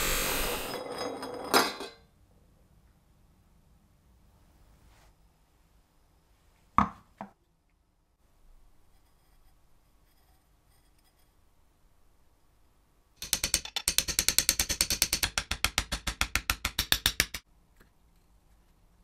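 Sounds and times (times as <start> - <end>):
rapid ratchet-like clicking: 13.2 - 15.4.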